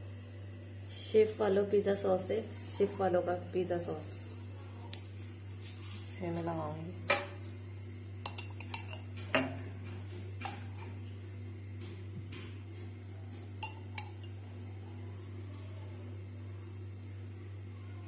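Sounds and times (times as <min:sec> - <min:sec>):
steady low hum: 0:00.0 - 0:18.0
spoon clinking glass jar: 0:08.3 - 0:09.6, 0:13.6 - 0:14.4.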